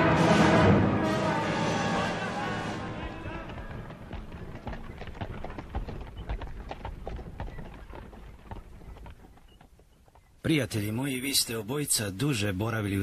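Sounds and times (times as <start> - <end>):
horses galloping: 3.0 - 10.9.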